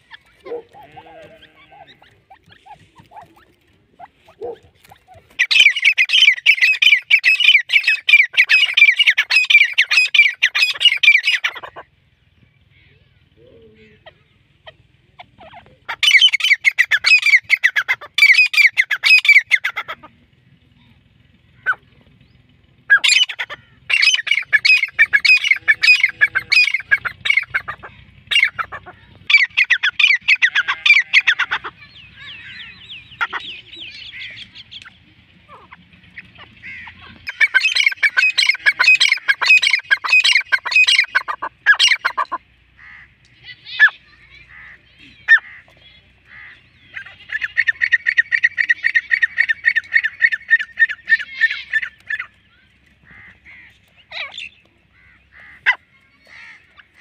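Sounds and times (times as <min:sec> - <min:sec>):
francolin calling harsh notes: 0:22.8 - 0:45.6.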